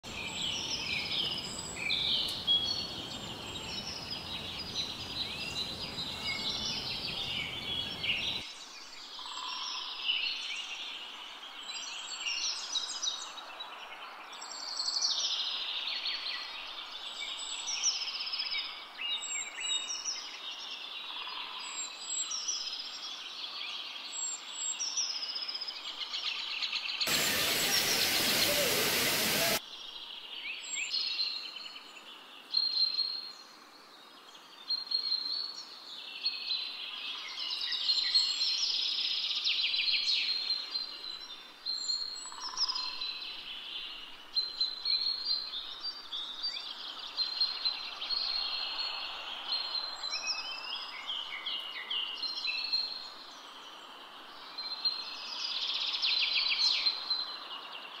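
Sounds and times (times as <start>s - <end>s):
small birds chirping and trilling: 0.1s - 13.7s, 14.3s - 58.0s
loud burst of hiss: 27.1s - 29.6s.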